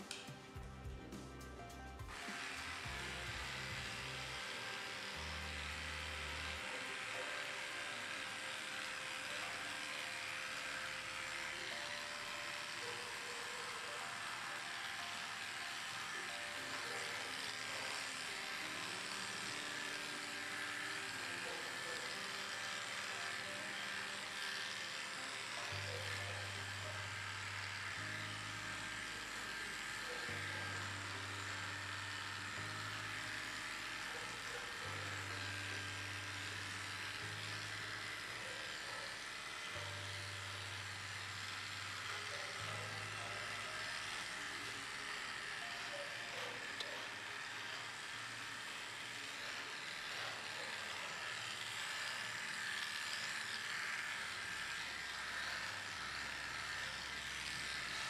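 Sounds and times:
electric clipper buzzing: 0.0 - 58.0
soft background music: 0.0 - 58.0.

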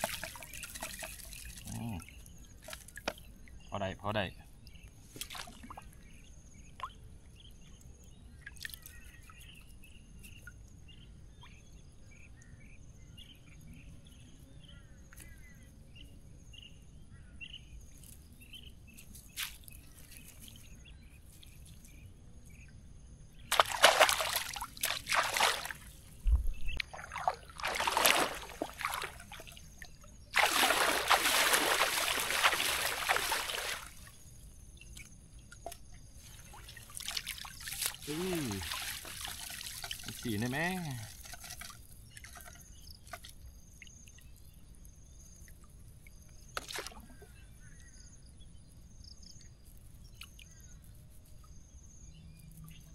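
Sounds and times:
water sloshing and splashing: 0.0 - 3.4, 5.1 - 6.0, 23.5 - 34.3, 34.9 - 44.3, 45.4 - 47.4
faint chirps: 0.4 - 5.0, 32.9 - 38.8.

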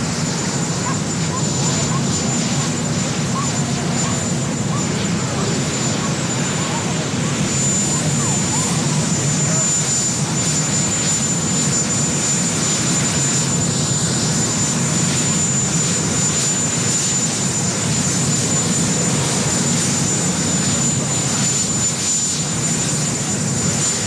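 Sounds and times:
helicopter engine and rotor noise: 0.0 - 24.0.

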